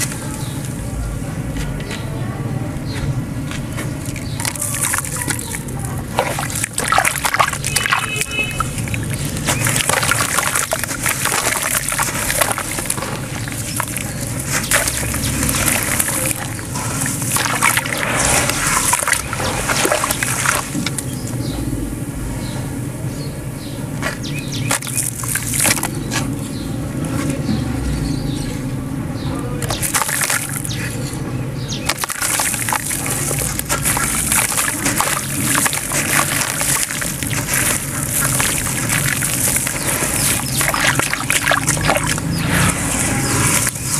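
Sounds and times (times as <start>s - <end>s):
hands sloshing wet sand: 3.8s - 21.1s, 24.1s - 26.4s, 29.6s - 31.0s, 31.7s - 43.9s
water splashing: 3.8s - 21.2s, 24.6s - 26.1s, 29.6s - 31.0s, 31.7s - 43.9s.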